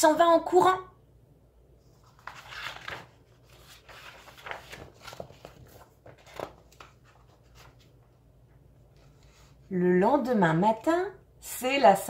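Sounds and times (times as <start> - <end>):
book pages rustling: 1.8 - 9.7.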